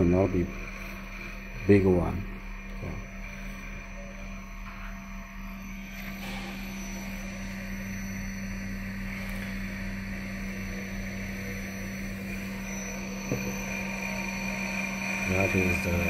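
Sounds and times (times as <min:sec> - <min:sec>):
high-pitched whines: 0:00.0 - 0:16.0
milling machine humming: 0:00.0 - 0:16.0.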